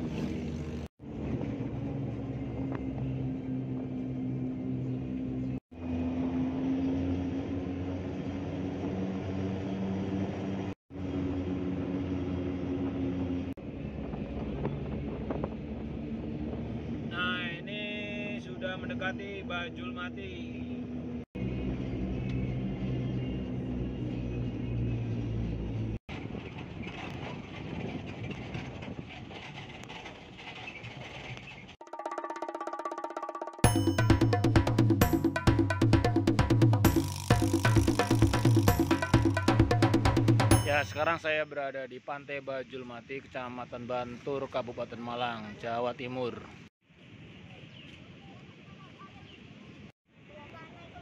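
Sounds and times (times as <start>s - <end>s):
vehicle engine and road noise: 0.0s - 31.8s, 33.7s - 41.4s
open-air background noise: 36.7s - 51.0s.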